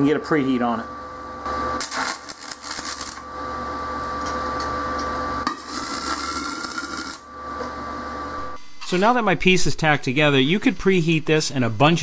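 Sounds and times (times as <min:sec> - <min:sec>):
welding arc crackling: 0:01.8 - 0:03.3, 0:05.4 - 0:07.3.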